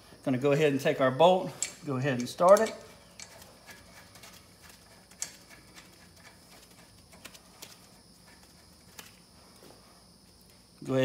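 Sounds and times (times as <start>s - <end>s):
faint metallic clicks and ticks: 1.5s - 9.2s.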